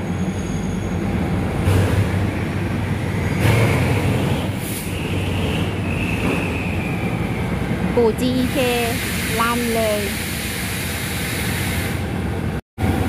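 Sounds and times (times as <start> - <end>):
high squeal: 0.0 - 1.2, 4.3 - 7.7
locomotive engine rumbling: 0.0 - 13.0
short hissing bursts: 8.5 - 12.0.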